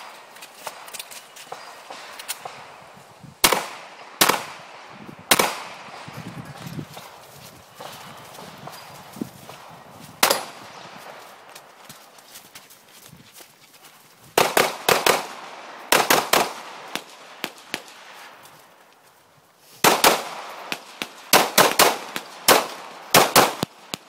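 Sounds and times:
pistol shots: 0:03.4 - 0:06.1, 0:10.2 - 0:11.2, 0:14.4 - 0:18.2, 0:19.8 - 0:24.0.

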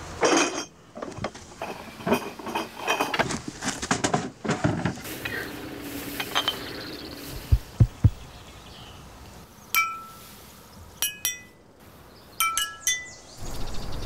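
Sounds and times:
wooden crates clattering: 0:00.2 - 0:05.4
glass bottles clinking: 0:06.2 - 0:06.8, 0:09.8 - 0:10.2, 0:11.0 - 0:11.6, 0:12.4 - 0:13.2
wooden knocks: 0:07.4 - 0:08.3.

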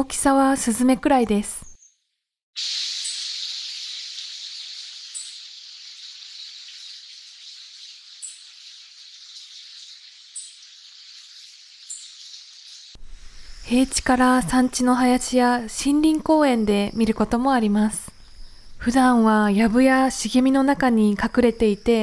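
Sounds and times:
bird high call notes: 0:02.6 - 0:12.9
background hiss: 0:02.6 - 0:20.6.

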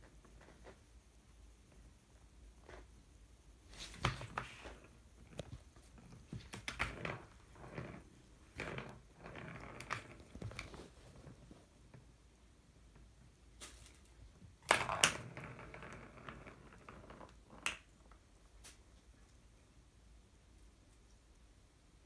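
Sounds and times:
balls clacking in plastic track: 0:06.4 - 0:10.4, 0:14.6 - 0:17.9.

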